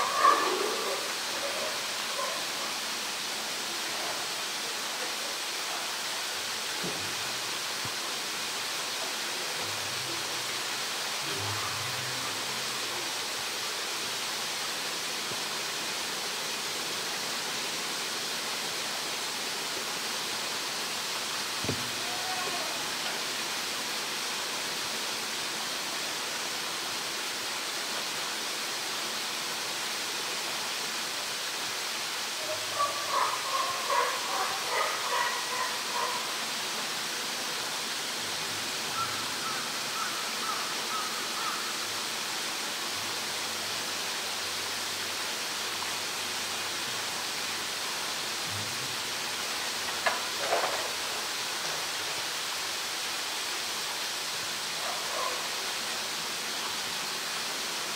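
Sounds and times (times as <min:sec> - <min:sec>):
higher-pitched calls: 0:38.9 - 0:41.8.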